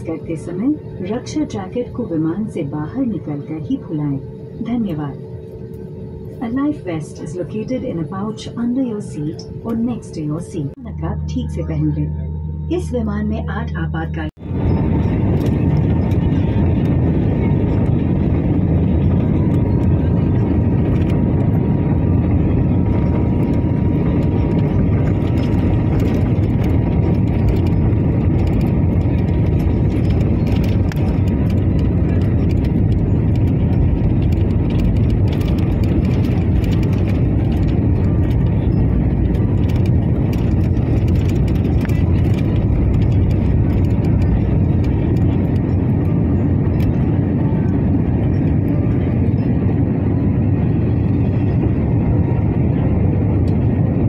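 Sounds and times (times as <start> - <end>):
faint high whine: 0.0 - 34.6
jet engine and rolling rumble: 0.0 - 54.0.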